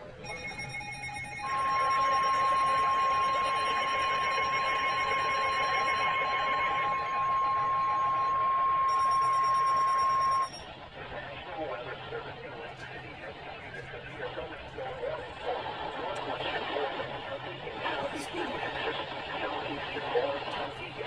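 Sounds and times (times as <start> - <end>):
radio warning alarm tone: 0.0 - 10.7
higher electronic tone: 0.2 - 10.6
radio hiss: 11.0 - 21.0.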